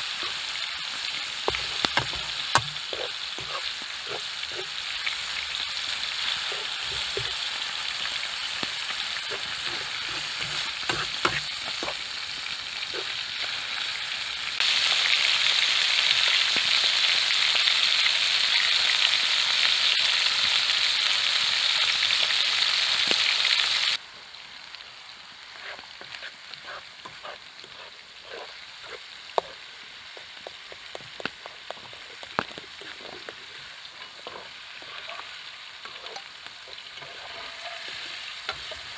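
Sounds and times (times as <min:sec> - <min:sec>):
spatula stirring and scraping: 0:00.0 - 0:08.0, 0:08.6 - 0:12.2, 0:25.6 - 0:38.9
meat sizzling in frying pans: 0:00.0 - 0:38.9.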